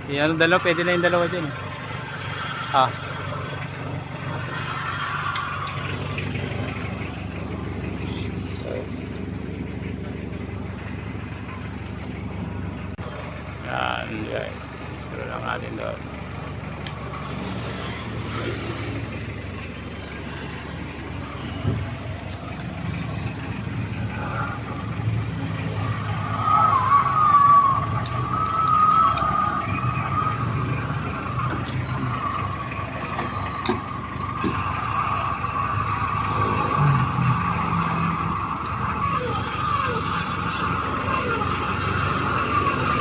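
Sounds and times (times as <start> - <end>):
truck engine running: 0.0 - 43.0.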